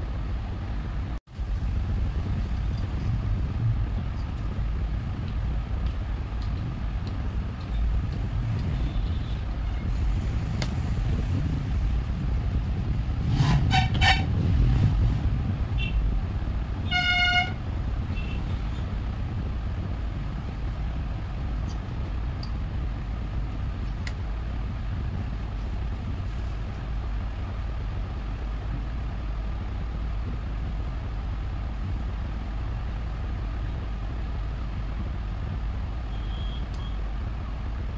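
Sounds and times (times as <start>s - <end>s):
road traffic rumble: 0.0s - 37.9s
vehicle horn honking: 16.9s - 17.6s, 36.1s - 37.0s.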